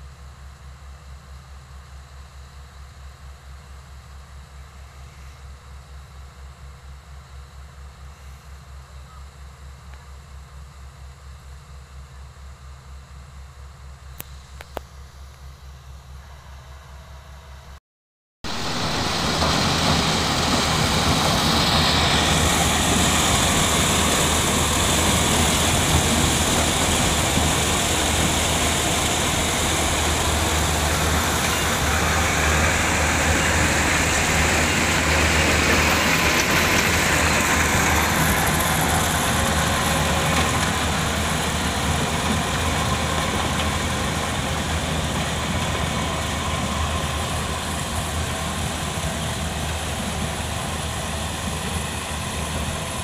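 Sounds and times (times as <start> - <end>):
combine harvester engine drone: 0.0 - 17.8, 18.5 - 53.0
threshing machinery noise: 18.5 - 53.0.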